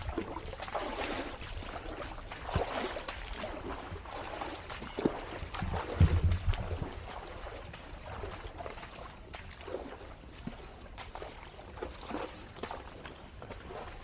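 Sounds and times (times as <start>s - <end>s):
feet squelching in wet mud: 0.0s - 14.0s.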